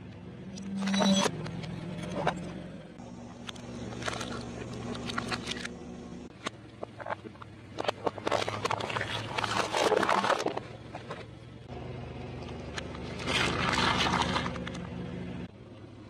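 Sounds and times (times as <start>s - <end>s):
car engine humming: 0.0s - 16.0s
tyre crushing plastic and ice: 3.7s - 5.7s, 6.4s - 11.4s, 12.8s - 14.8s.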